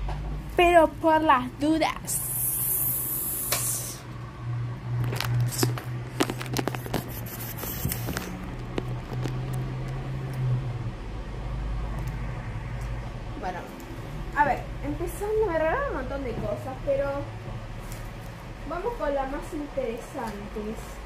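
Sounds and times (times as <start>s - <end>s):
rustling and scraping of handling: 5.0s - 10.3s, 16.2s - 21.0s.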